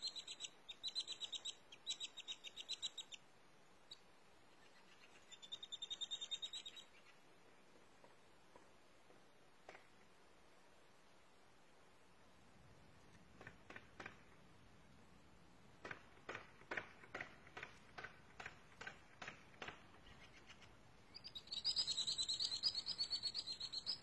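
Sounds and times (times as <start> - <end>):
songbird chirping and trilling: 0.0 - 7.3, 19.9 - 24.0.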